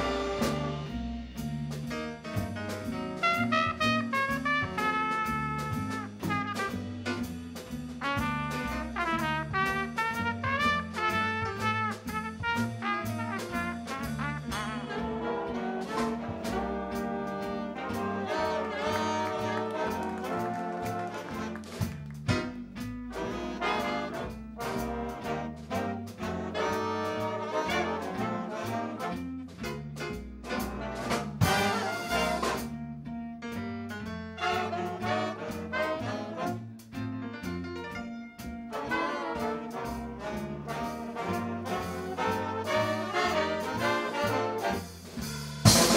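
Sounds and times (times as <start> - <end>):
drum and cymbal hits: 0.0 - 14.9, 29.5 - 32.7, 39.4 - 45.9
big band playing swing jazz: 0.0 - 45.9.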